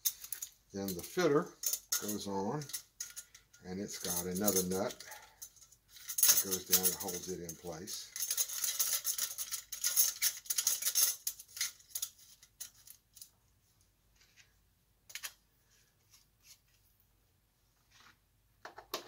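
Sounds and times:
metallic scraping and clicking: 0.0s - 13.3s.

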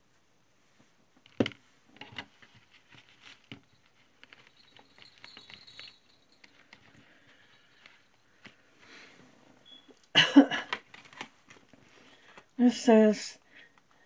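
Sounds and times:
plastic packaging crinkling: 2.0s - 8.6s.

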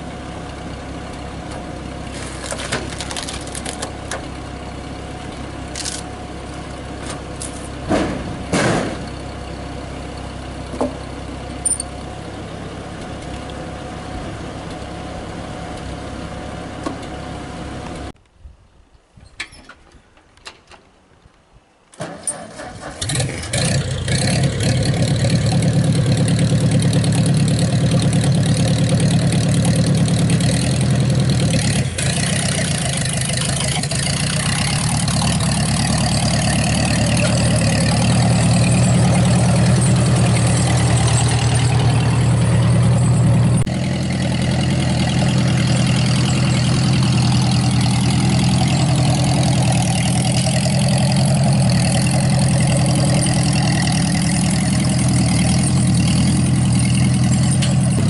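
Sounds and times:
tractor engine cranking and starting: 0.0s - 18.2s, 19.2s - 21.0s, 21.9s - 58.0s
tractor engine running: 0.0s - 18.2s, 22.0s - 58.0s.

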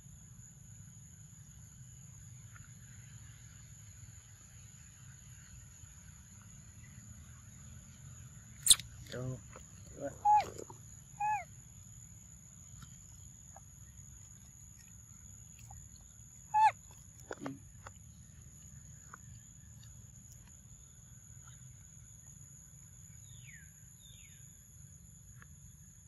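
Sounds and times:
high insect drone: 0.0s - 26.0s
high squeaky animal call: 8.6s - 8.8s, 10.0s - 11.5s, 16.5s - 16.8s.

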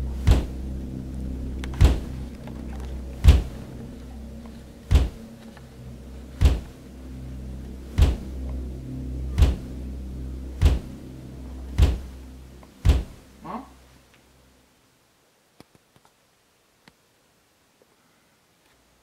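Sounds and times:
low steady drone: 0.0s - 15.0s
heavy thuds: 0.1s - 0.8s, 1.5s - 5.5s, 6.3s - 6.8s, 7.9s - 8.6s, 9.2s - 9.8s, 10.6s - 11.0s, 11.7s - 13.3s.

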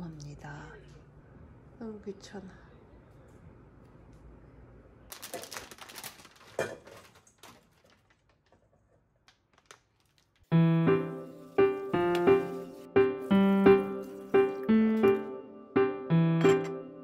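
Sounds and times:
piano music: 10.5s - 17.0s.

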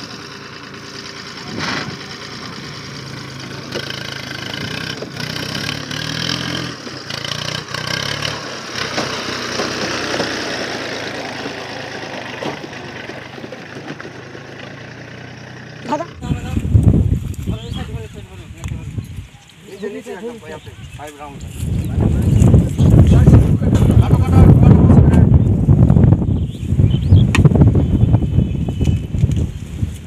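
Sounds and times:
tractor diesel engine running: 0.0s - 17.8s.

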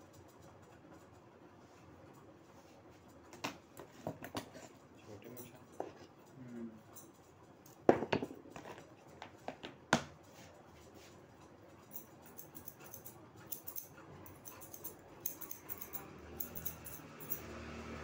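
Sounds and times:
scissors snipping hair: 11.8s - 17.5s.

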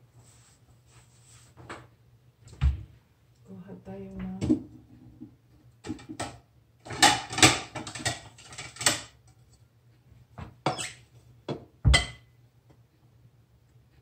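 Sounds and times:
dishes clattering: 5.9s - 9.1s, 11.5s - 12.3s.

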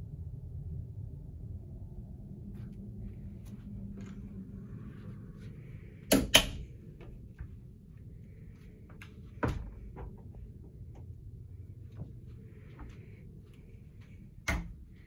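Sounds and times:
steady low hum: 0.0s - 15.0s
door latch clicks: 6.1s - 6.6s.

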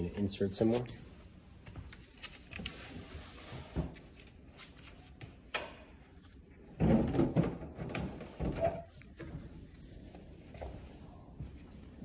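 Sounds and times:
appliance sliding and bumping: 6.7s - 9.5s.

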